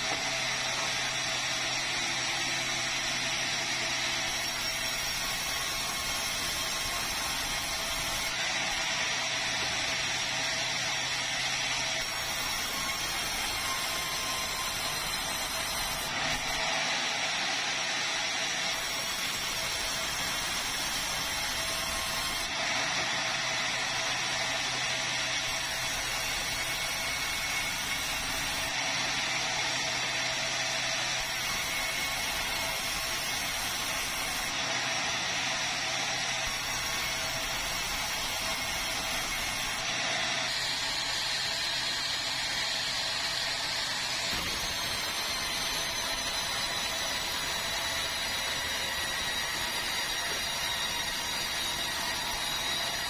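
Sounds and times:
band saw cutting timber: 0.0 - 53.0.

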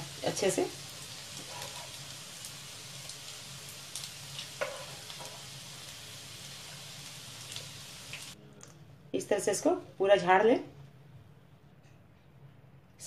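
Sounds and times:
food deep-frying in hot oil: 0.0 - 8.4.

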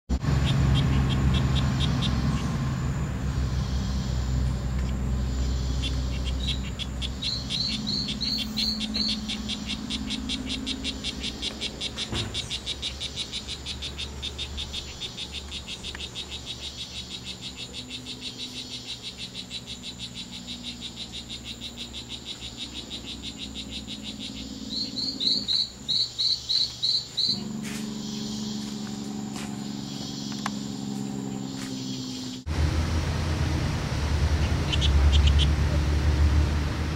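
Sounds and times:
frog buzzy chirps: 0.3 - 2.7, 3.4 - 32.4, 34.4 - 35.6
upward-sweeping frog chirps: 0.4 - 2.6, 5.2 - 30.9, 34.6 - 35.5.

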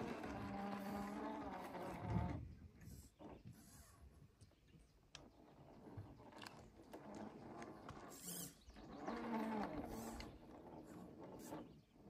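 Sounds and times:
electric motor whine: 0.0 - 2.5, 6.8 - 12.0
tyres clicking and scraping on rock: 5.1 - 11.9.

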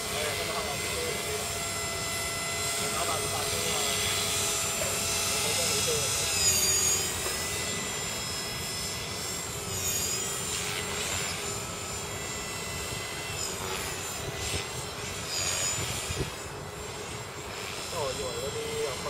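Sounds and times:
electric motor whine: 0.0 - 19.0
rotor blade noise: 0.0 - 19.0.

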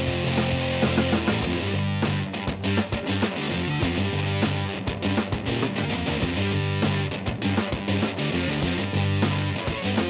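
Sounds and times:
guitar music over a beat: 0.0 - 10.0.

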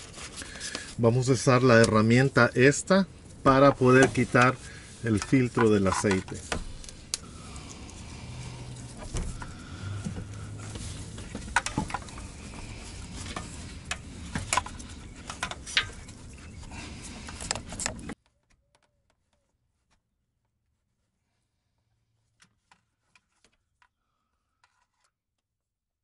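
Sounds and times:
metal clicks and scrapes: 3.6 - 9.5, 10.6 - 18.2.

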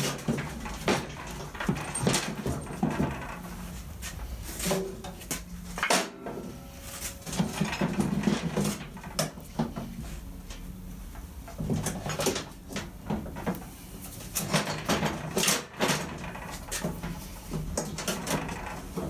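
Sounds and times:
metal knocks and scrapes: 0.0 - 10.2.

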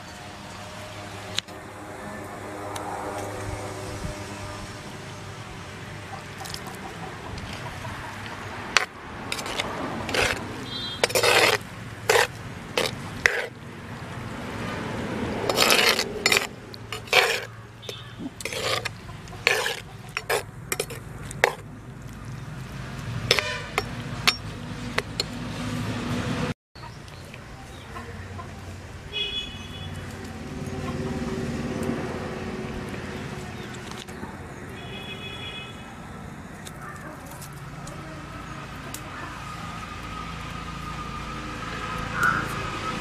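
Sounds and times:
metal spoon scraping clay pot: 8.7 - 13.6, 15.4 - 21.7, 23.3 - 25.4.

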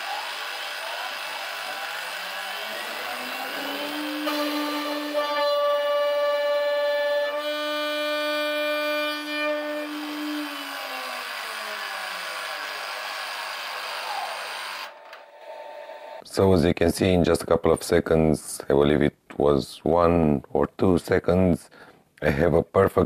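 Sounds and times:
router spindle high whine: 0.0 - 16.2.

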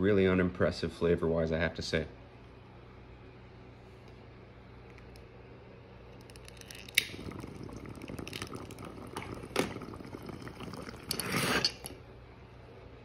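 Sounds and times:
water bubbling in a bong: 6.3 - 12.0
air rushing through bowl: 6.4 - 12.0.

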